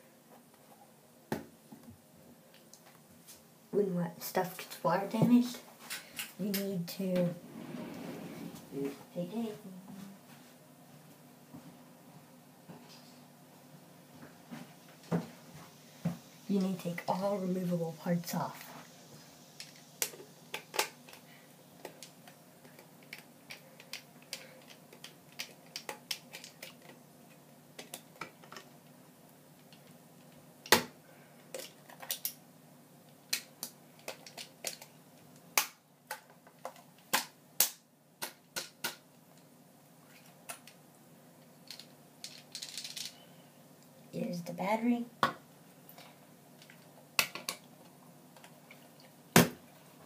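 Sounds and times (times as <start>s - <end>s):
plastic toy clicking and snapping: 22.7s - 27.0s.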